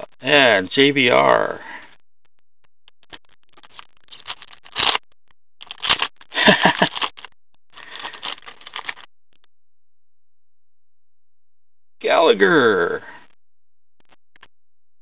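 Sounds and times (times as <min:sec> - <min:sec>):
cards rustling and scraping: 0:03.0 - 0:05.0, 0:05.6 - 0:09.1
wrapper crinkling and tearing: 0:03.1 - 0:05.0, 0:05.6 - 0:09.1.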